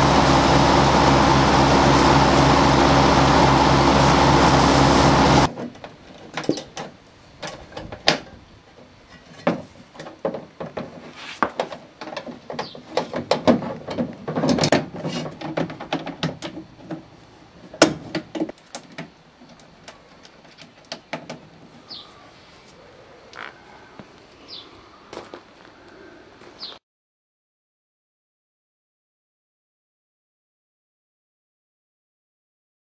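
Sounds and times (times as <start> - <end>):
ride-on mower engine running: 0.0 - 5.6
bird chirp: 21.8 - 23.6, 24.4 - 25.1, 26.6 - 26.8.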